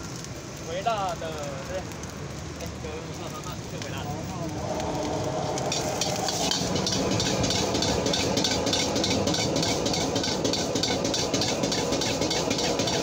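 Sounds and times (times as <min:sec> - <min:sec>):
gas burner rumbling: 0:00.0 - 0:13.0
ladle scraping a wok: 0:05.0 - 0:13.0.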